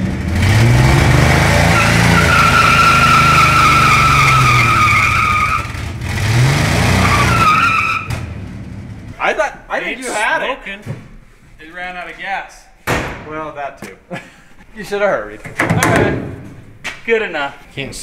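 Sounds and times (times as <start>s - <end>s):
tire squealing: 0.0s - 9.2s
truck engine revving: 0.0s - 9.2s.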